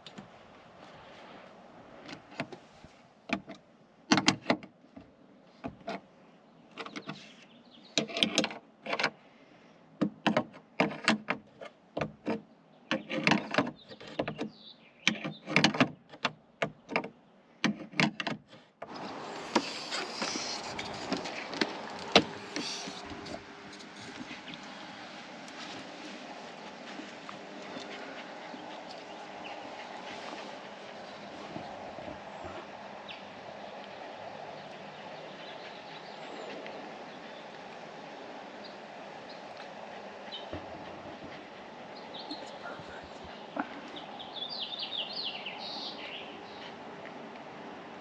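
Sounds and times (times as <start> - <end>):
wood and hardware clattering: 15.1 - 24.8.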